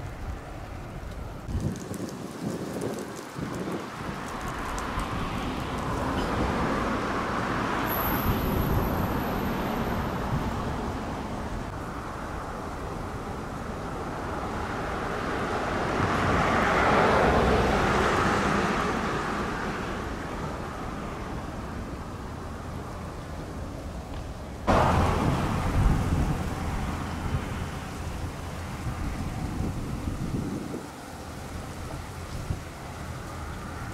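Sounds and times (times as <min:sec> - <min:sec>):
background road noise: 0:00.0 - 0:33.9
car passing: 0:00.0 - 0:33.9.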